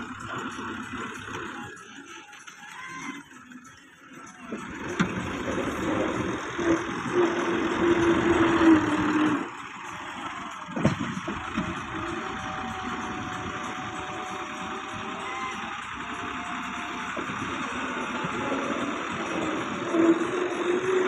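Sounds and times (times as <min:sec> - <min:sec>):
tractor diesel engine labouring: 0:00.0 - 0:21.0.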